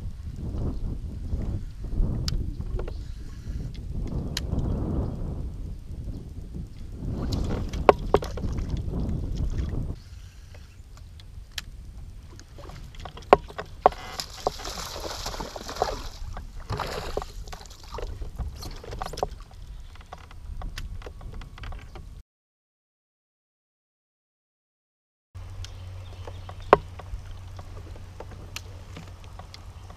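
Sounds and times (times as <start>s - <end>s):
low microphone rumble: 0.0s - 22.2s
fishing rod and reel clicks: 2.2s - 4.8s, 10.0s - 22.0s
fish splashing at water surface: 14.0s - 18.2s.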